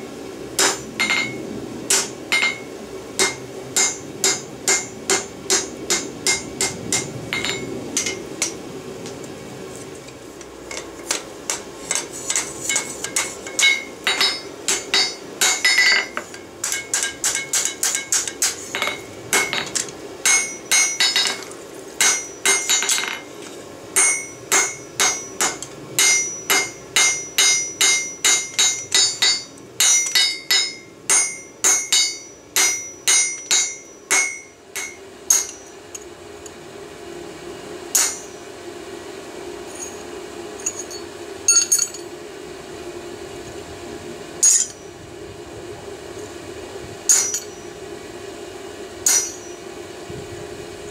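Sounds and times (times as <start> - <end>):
hammer striking hot steel on anvil: 0.6 - 8.6, 10.7 - 23.3, 24.0 - 36.6, 37.9 - 38.5, 39.7 - 42.1, 44.4 - 44.9, 47.1 - 47.8, 49.0 - 49.7.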